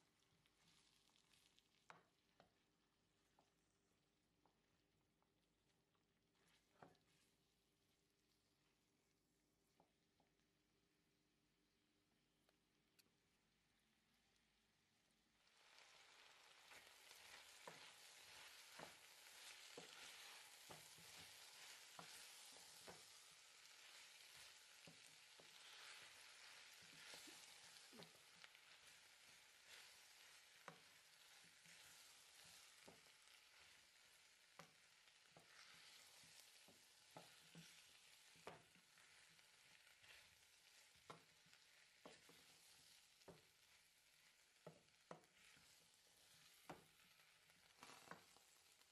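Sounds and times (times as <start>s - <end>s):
vegetables sizzling in a pot: 0.0s - 4.7s, 5.6s - 8.8s, 13.6s - 48.9s
wooden spoon knocking and scraping pot: 16.6s - 33.2s, 34.5s - 43.6s, 44.6s - 46.9s.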